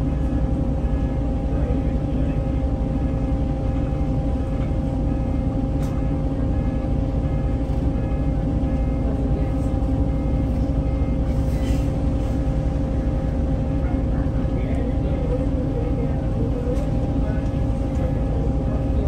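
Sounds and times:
bus engine idling: 0.0 - 19.0
engine whine: 0.0 - 19.0.

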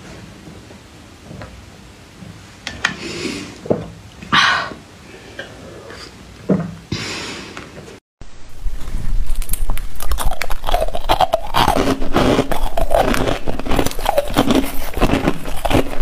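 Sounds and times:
person slurping slush: 10.0 - 16.0.

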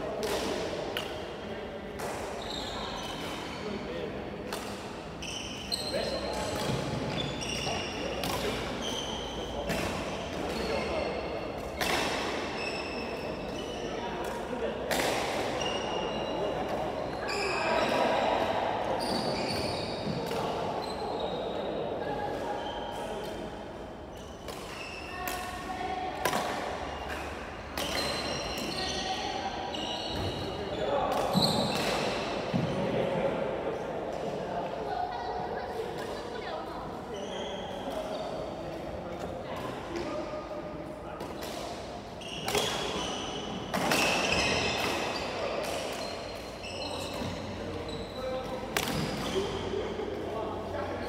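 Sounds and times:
shoes squeaking on court: 2.4 - 3.9, 5.2 - 14.0, 19.0 - 21.7, 26.8 - 32.9, 37.1 - 38.5, 42.2 - 49.8
racket hitting shuttlecock: 14.2 - 15.6, 26.2 - 28.7, 48.7 - 49.3
shoes squeaking on wooden floor: 27.9 - 31.8.

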